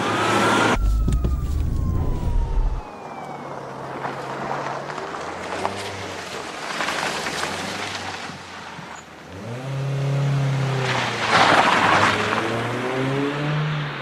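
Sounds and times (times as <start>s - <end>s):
car engine accelerating: 0.0s - 2.9s
tyre and road noise: 0.0s - 14.0s.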